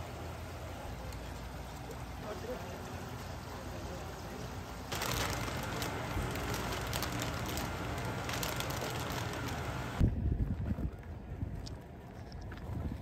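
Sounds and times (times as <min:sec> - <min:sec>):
low background hum: 0:00.0 - 0:13.0
stiff paper crinkling: 0:04.9 - 0:10.0.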